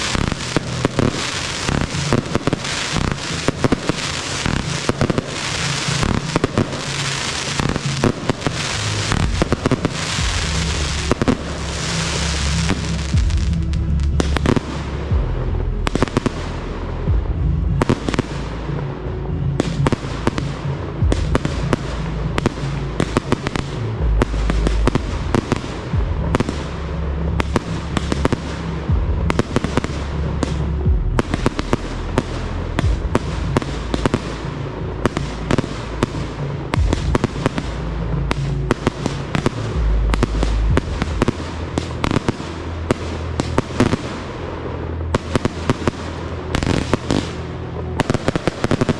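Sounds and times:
fireworks bursting and crackling: 0:00.0 - 0:48.9.

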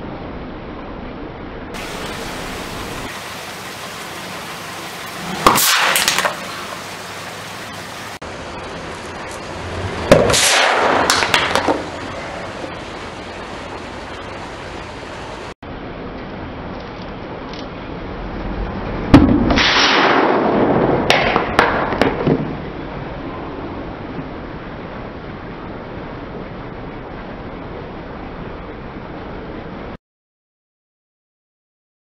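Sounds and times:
hissing spray: 0:01.8 - 0:08.2
spray can bursting pop: 0:05.4 - 0:06.6.

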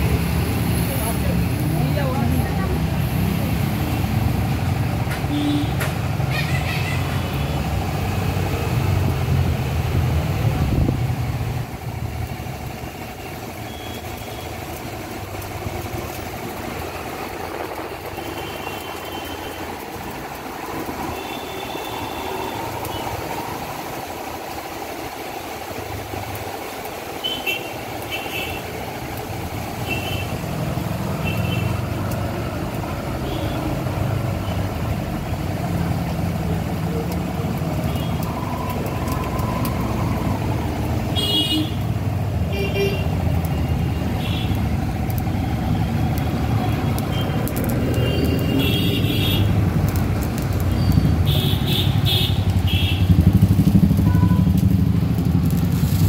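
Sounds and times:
street traffic: 0:00.0 - 0:56.0
vehicle engine running: 0:27.9 - 0:56.0.

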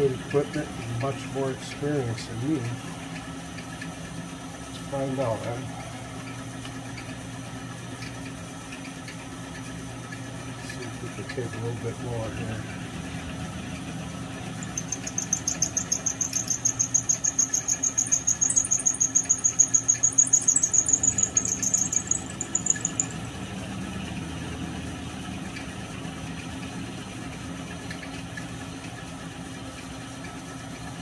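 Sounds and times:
milling machine humming: 0:14.6 - 0:23.2.

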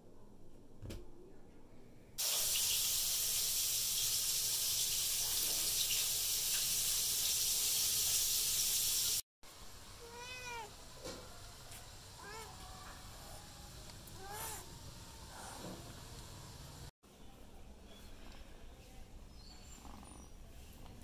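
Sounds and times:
loud steady hiss: 0:02.2 - 0:11.0
cat meowing: 0:10.0 - 0:10.7, 0:12.2 - 0:12.6.

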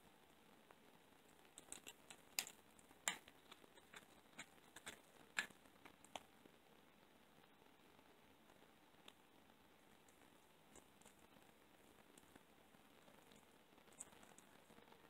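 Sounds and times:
cat crunching bone: 0:01.4 - 0:06.2.

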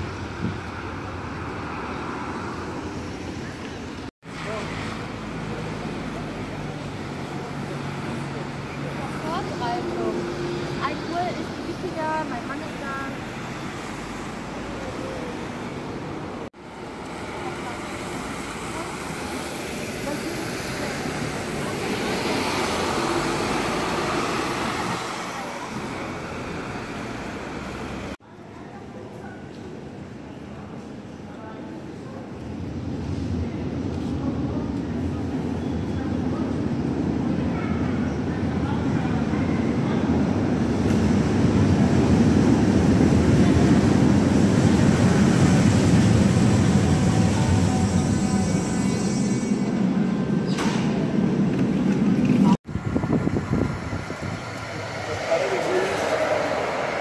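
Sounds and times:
bus driving off: 0:00.0 - 0:28.2, 0:32.7 - 0:57.0
cars passing on wet road: 0:00.0 - 0:28.2, 0:40.0 - 0:48.8, 0:51.4 - 0:57.0
train rumble: 0:31.8 - 0:57.0.

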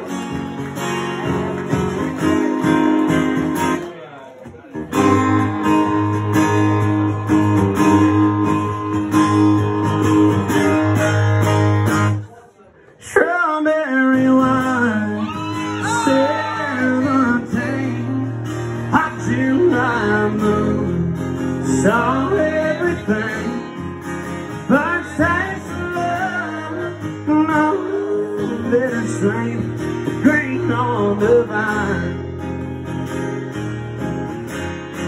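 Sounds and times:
acoustic guitar strumming: 0:00.0 - 0:12.3, 0:13.7 - 0:35.0
man singing into a microphone: 0:13.0 - 0:32.4.

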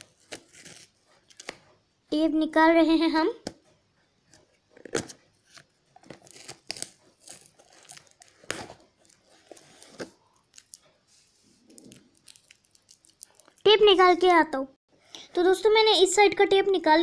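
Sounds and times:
packing tape peeling off cardboard: 0:06.1 - 0:09.3.

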